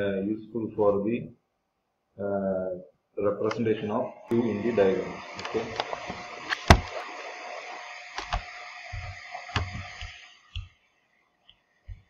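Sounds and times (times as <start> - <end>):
steady hiss: 3.4 - 12.0.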